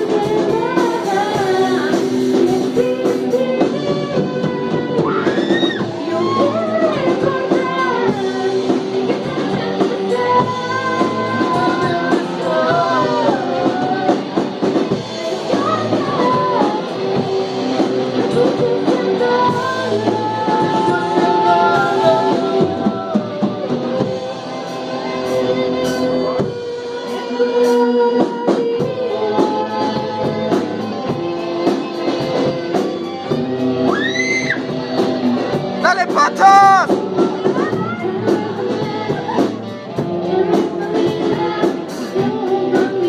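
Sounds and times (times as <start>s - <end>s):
drum kit with cymbals: 0.0s - 43.0s
person singing: 35.8s - 37.0s.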